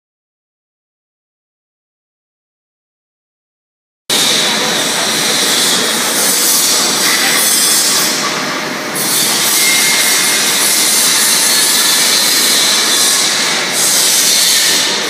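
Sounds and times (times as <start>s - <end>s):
coating machine rushing hiss: 4.1s - 15.0s.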